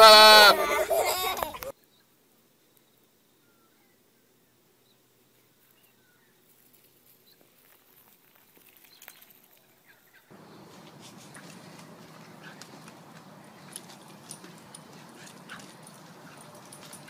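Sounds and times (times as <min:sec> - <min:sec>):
light scuffling ticks: 0:10.4 - 0:17.0.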